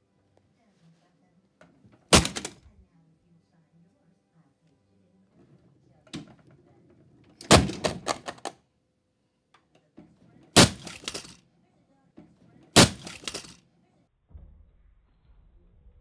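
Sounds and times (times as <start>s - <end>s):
plastic cracking and crunching: 2.1s - 2.6s, 7.4s - 8.5s, 10.6s - 11.4s, 12.8s - 13.6s
heavy impacts: 2.1s - 2.8s, 7.2s - 8.5s, 10.5s - 11.4s, 12.7s - 13.6s.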